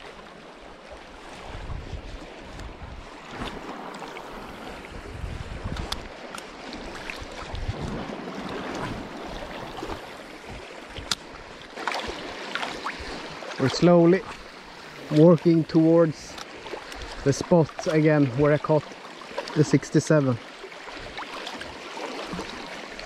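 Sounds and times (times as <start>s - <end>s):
water sloshing around legs: 0.0s - 19.8s, 20.4s - 23.0s
wind rumbling on microphone: 1.0s - 11.6s
sharp clicks or small splashes: 5.7s - 8.0s, 11.0s - 14.4s.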